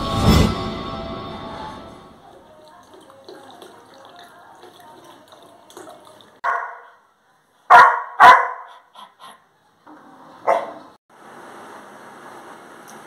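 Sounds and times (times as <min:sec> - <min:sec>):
dog barking: 0:06.4 - 0:07.0, 0:07.7 - 0:09.4, 0:10.4 - 0:10.9.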